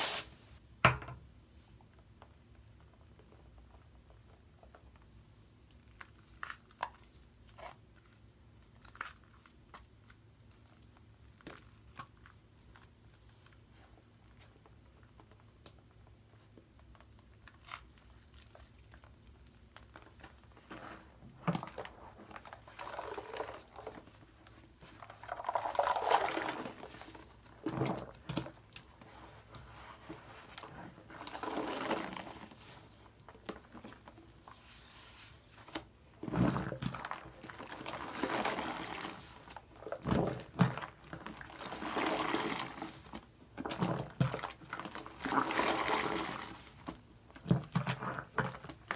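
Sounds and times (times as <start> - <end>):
foamy sponge squelching in water: 0.0 - 0.3, 20.0 - 47.0.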